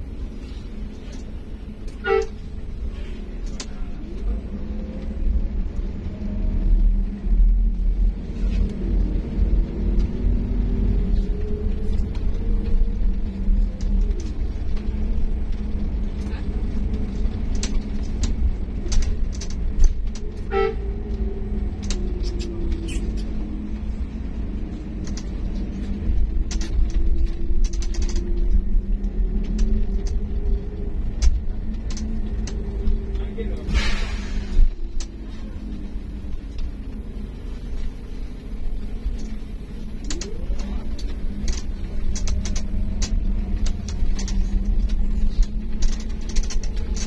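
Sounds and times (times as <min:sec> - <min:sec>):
bus diesel engine rumbling: 0:00.0 - 0:47.0
clicks and rattles: 0:25.0 - 0:33.3, 0:40.0 - 0:47.0.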